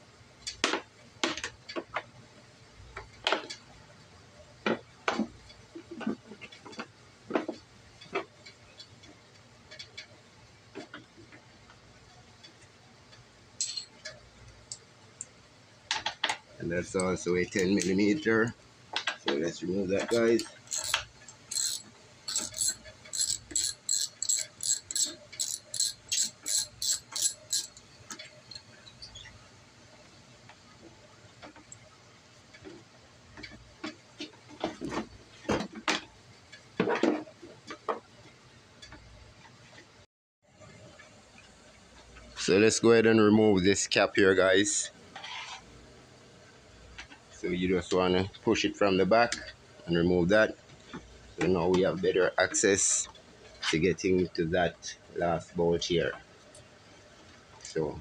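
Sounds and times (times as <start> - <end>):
ratchet wrench clicking: 20.1 - 27.9.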